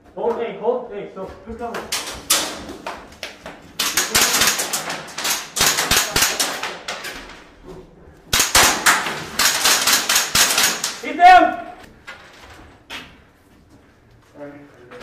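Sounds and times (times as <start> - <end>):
rapid gunfire: 3.8 - 6.9, 8.3 - 11.0.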